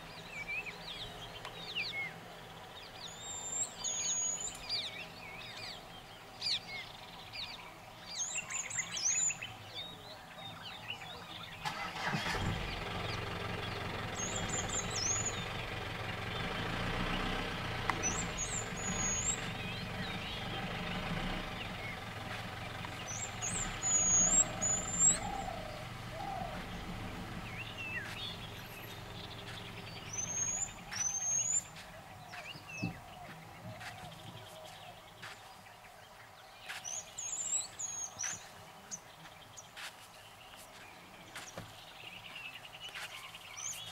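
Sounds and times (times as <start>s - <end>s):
vehicle engine running: 11.4s - 35.4s
bird whistled calls: 14.2s - 15.5s, 18.0s - 19.8s, 23.1s - 26.7s, 30.0s - 32.9s.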